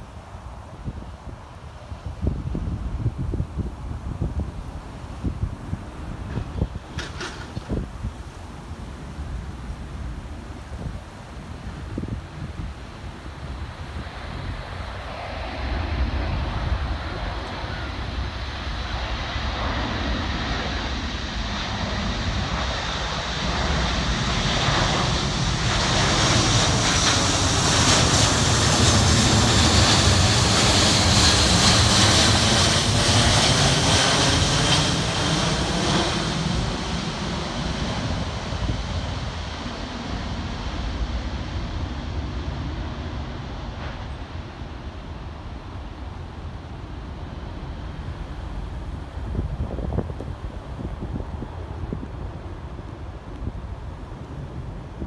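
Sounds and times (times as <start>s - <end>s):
jet aircraft passing overhead: 11.2s - 55.0s.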